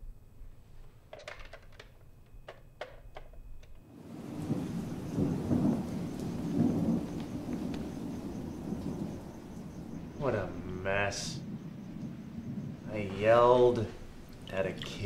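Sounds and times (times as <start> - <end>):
sharp clicks and knocks: 1.1 - 3.8
low rumbling wash of noise: 4.1 - 15.0.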